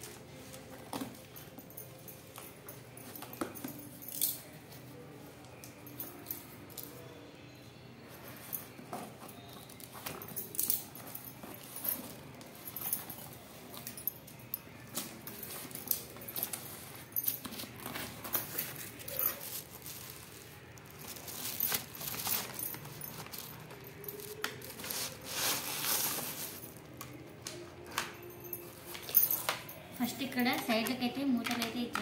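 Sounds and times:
plastic film crinkling: 17.6 - 27.6.

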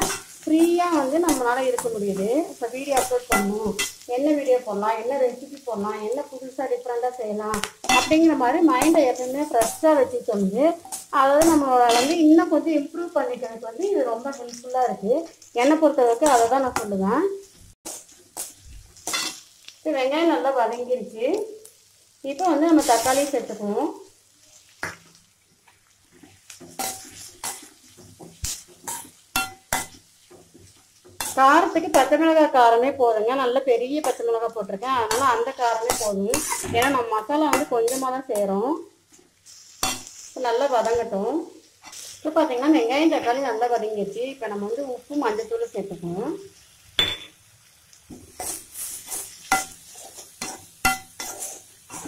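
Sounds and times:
spoon stirring in a pan: 0.0 - 4.1, 13.2 - 19.8, 24.4 - 38.2, 39.1 - 42.4, 48.0 - 52.0
faint sizzle: 0.0 - 52.0
spoon knocking metal pan: 2.9 - 4.0, 7.5 - 9.9, 26.6 - 30.5, 34.9 - 38.0, 47.0 - 47.4, 49.5 - 49.8, 50.4 - 51.3
spatula clinking against pan: 3.0 - 4.0, 28.9 - 30.0, 49.5 - 49.8, 50.4 - 51.5
spatula scraping metal pan: 26.2 - 32.1, 35.1 - 38.1, 48.3 - 52.0.

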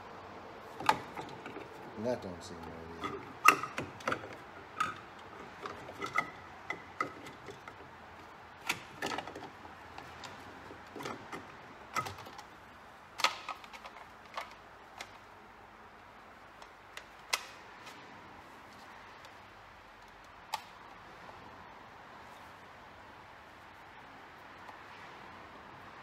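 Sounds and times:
plastic and metal parts clicking: 3.0 - 12.6, 13.2 - 15.3.

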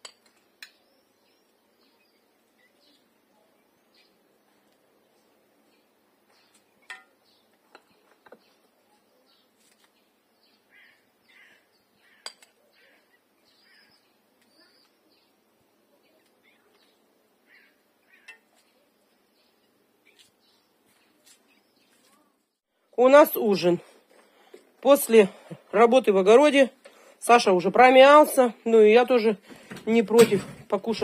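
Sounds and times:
birds chirping: 0.0 - 31.0.

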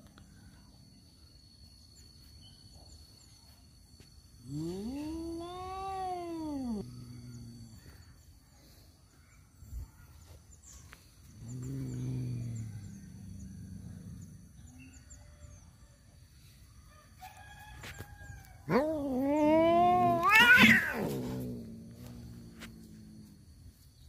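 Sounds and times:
cat growling moan: 4.5 - 8.0, 11.4 - 14.4, 18.7 - 23.5
cat yowling: 4.7 - 6.9, 18.7 - 21.6.

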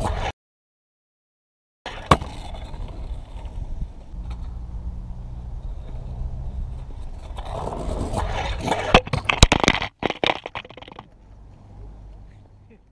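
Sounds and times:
scooter wheels scraping on asphalt: 1.9 - 4.6, 5.4 - 11.2
camera knocking and clattering: 9.0 - 11.1.

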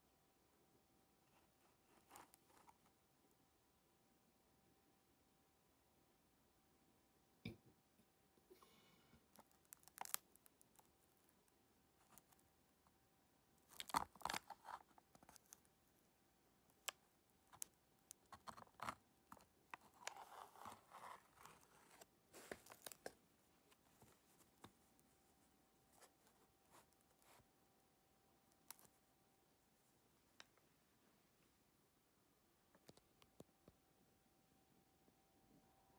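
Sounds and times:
cardboard rustling and crinkling: 18.3 - 27.4.

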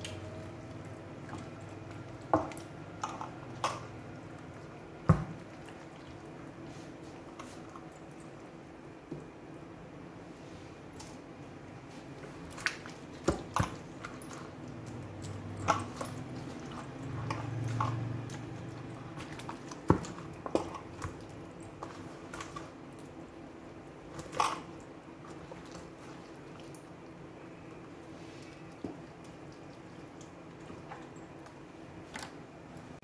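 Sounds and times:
hands squelching marinade into meat: 12.0 - 32.4.

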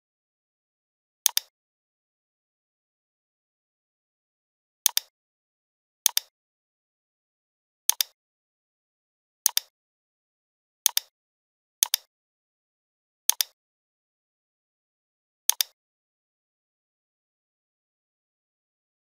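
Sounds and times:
computer mouse clicks: 1.3 - 1.5, 4.9 - 5.1, 6.1 - 6.3, 7.9 - 8.2, 9.5 - 9.7, 10.9 - 11.1, 11.8 - 12.1, 13.3 - 13.6, 15.5 - 15.8.

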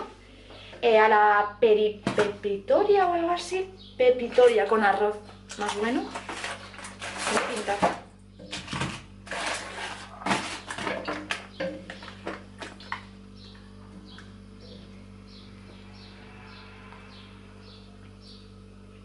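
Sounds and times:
steady low hum: 0.0 - 19.0
utensils scraping a cooking pot: 8.5 - 10.9.

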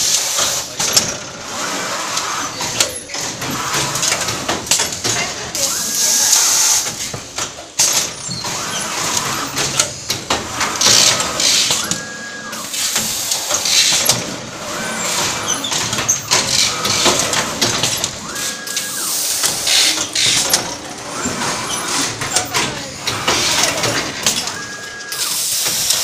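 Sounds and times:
motor whine: 10.6 - 26.0
pneumatic air hisses: 12.6 - 14.1, 25.1 - 26.0.

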